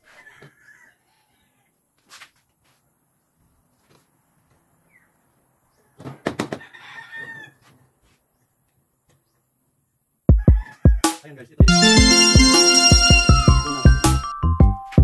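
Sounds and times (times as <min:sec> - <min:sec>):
rooster crowing: 0:00.1 - 0:01.5, 0:06.6 - 0:07.6.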